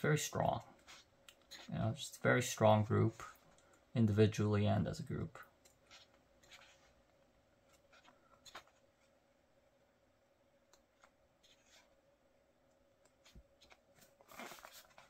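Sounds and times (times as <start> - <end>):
faint steady hum: 0.0 - 15.0
paper pages turning: 13.3 - 15.0.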